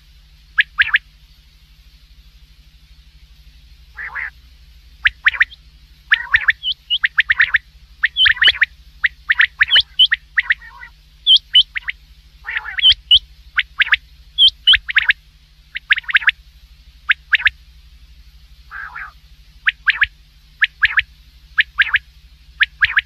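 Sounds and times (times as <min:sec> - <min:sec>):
low steady hum: 0:00.0 - 0:23.0
quail calling: 0:00.6 - 0:01.0, 0:03.9 - 0:04.4, 0:05.0 - 0:16.4, 0:17.1 - 0:17.6, 0:18.7 - 0:23.0.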